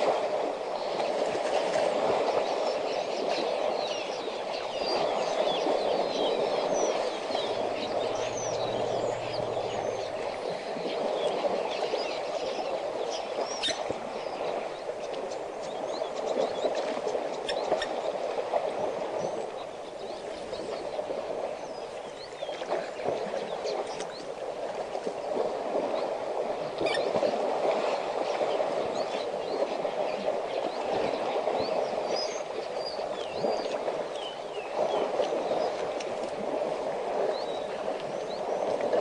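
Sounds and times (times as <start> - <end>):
water sloshing and splashing: 0.0 - 39.0
small birds chirping: 4.9 - 10.6.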